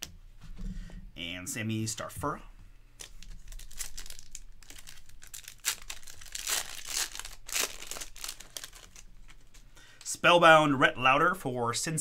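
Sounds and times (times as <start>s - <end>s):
foil wrapper crinkling and tearing: 3.0s - 9.5s.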